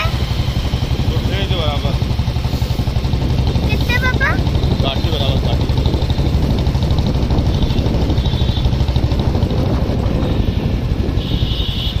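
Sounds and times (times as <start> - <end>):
motorcycle engine running: 0.0 - 12.0
wind buffeting microphone: 0.0 - 12.0.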